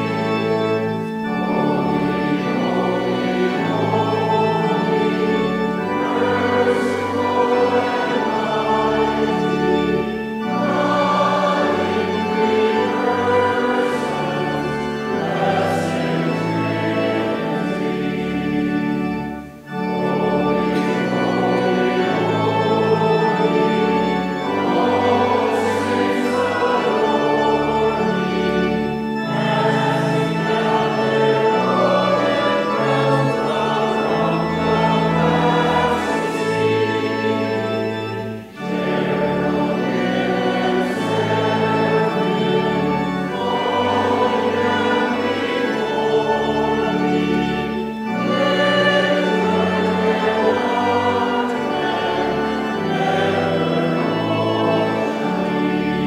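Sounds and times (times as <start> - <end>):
congregation singing a hymn: 0.0 - 56.0
organ accompaniment: 0.0 - 56.0.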